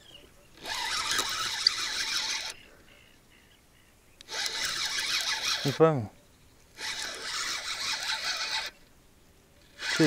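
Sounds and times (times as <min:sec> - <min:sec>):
fishing reel whirring: 0:00.6 - 0:02.6, 0:04.3 - 0:05.8, 0:06.8 - 0:08.8, 0:09.6 - 0:10.0.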